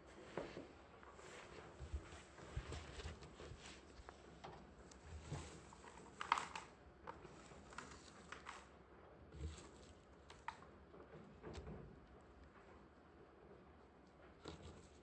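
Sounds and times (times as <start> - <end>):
rabbit paws rustling hay: 0.0 - 6.2.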